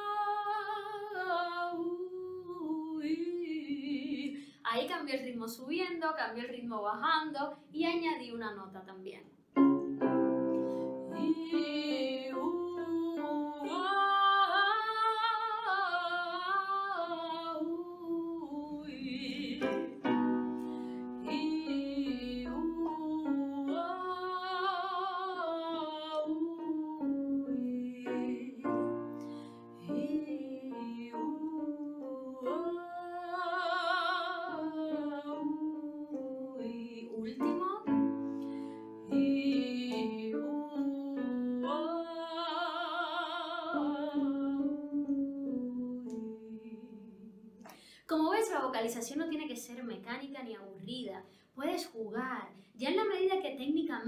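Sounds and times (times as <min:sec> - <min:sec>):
piano accompaniment: 0:09.5 - 0:15.2, 0:18.7 - 0:47.1
woman singing vocalise: 0:10.9 - 0:20.1, 0:21.0 - 0:38.0.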